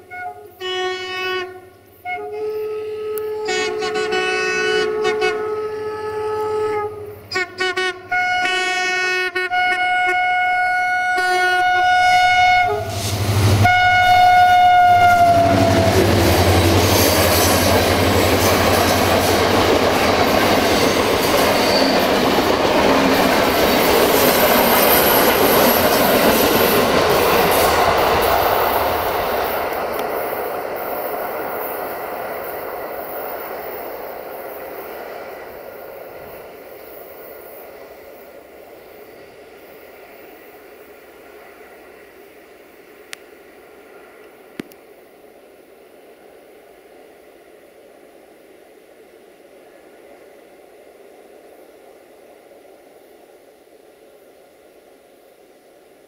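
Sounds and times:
locomotive horn blasts: 0:00.0 - 0:16.0
coaches rolling on rails: 0:10.9 - 0:45.0
locomotive engine and wheel noise: 0:14.9 - 0:47.6.

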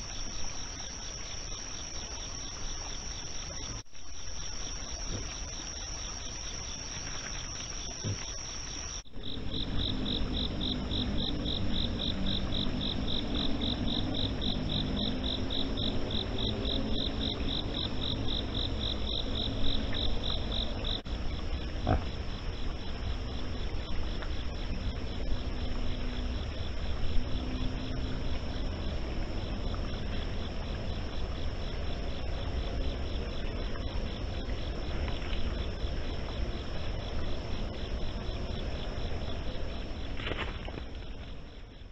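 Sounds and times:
crickets trilling: 0:00.0 - 0:41.9
fast pulsing insect chirp: 0:00.0 - 0:41.9
low rumbling noise: 0:09.0 - 0:41.9.

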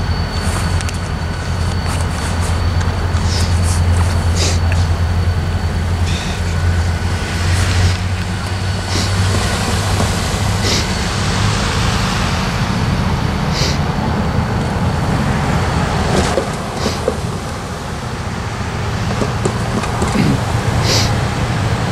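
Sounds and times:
diesel locomotive engine running: 0:00.0 - 0:21.9
short high hisses: 0:13.5 - 0:13.9.

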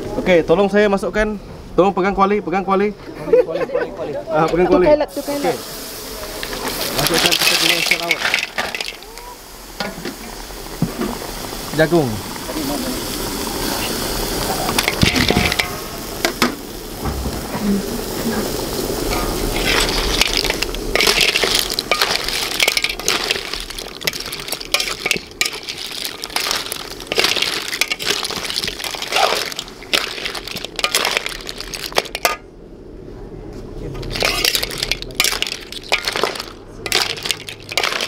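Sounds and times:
shells clattering in a wok: 0:06.4 - 0:09.2, 0:14.7 - 0:16.5, 0:19.1 - 0:32.4, 0:34.0 - 0:38.0.

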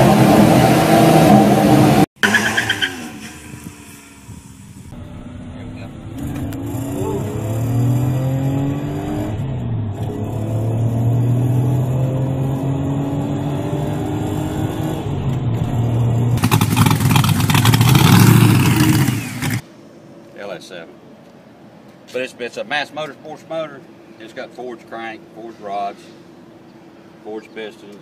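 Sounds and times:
rough engine revving with crackle: 0:15.9 - 0:19.6.

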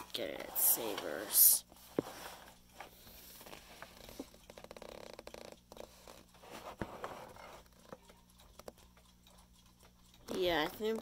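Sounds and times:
plastic alarm clock clicking: 0:07.3 - 0:11.0.

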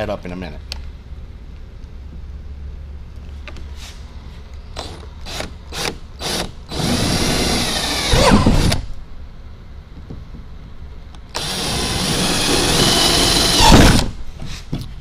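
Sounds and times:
power drill drilling: 0:04.8 - 0:08.8, 0:11.4 - 0:14.1.

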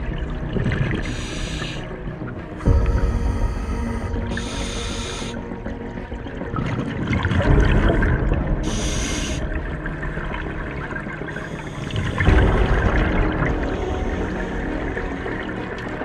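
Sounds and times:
exhaled bubbles rumbling: 0:00.0 - 0:16.0
diver breathing underwater: 0:01.0 - 0:06.0, 0:08.6 - 0:09.6.

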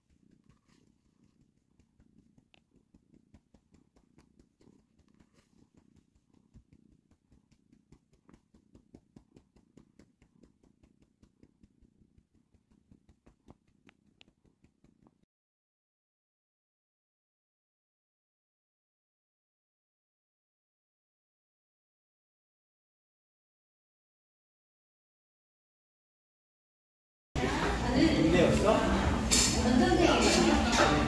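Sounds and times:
cat purring: 0:00.0 - 0:15.3.

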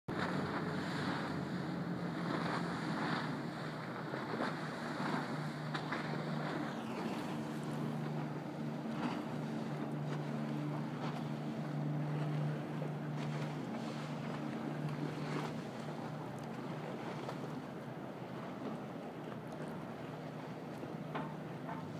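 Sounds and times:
boat engine droning: 0:00.1 - 0:21.9
high whine dropping in pitch: 0:06.7 - 0:08.0.

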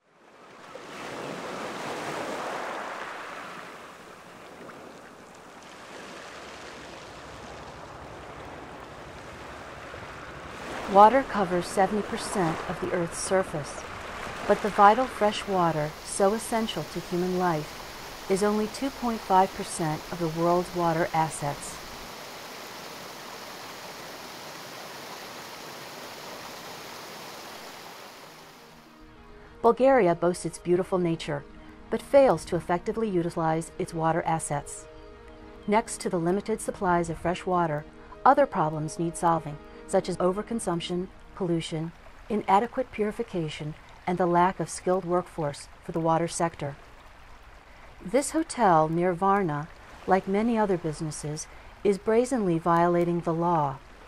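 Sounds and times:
sea water splashing: 0:00.2 - 0:28.8, 0:44.8 - 0:54.0.

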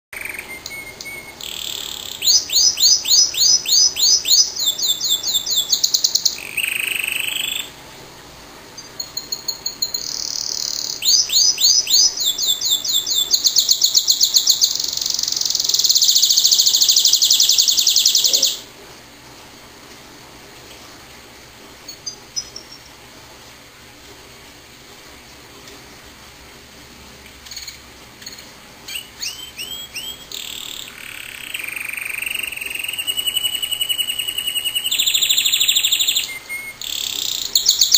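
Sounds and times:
canary singing trills: 0:00.2 - 0:07.8, 0:08.8 - 0:18.7, 0:28.9 - 0:37.9.

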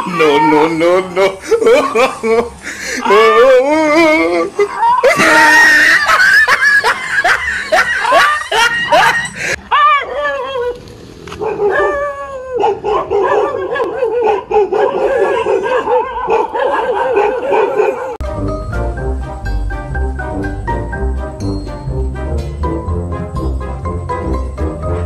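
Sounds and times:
dog yelping: 0:11.4 - 0:18.2
music: 0:18.2 - 0:25.0.

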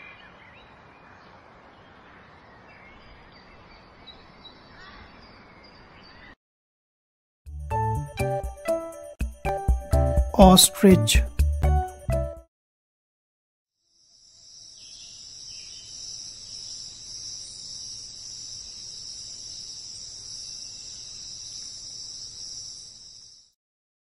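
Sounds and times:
insects chirring: 0:13.8 - 0:23.6.

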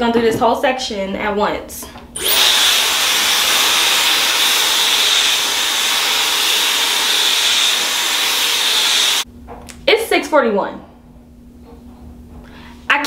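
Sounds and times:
hair dryer running: 0:02.2 - 0:09.2.

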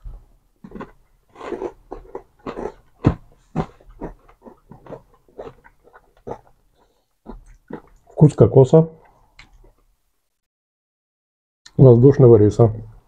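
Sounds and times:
crunching wafer bar: 0:00.6 - 0:08.0.

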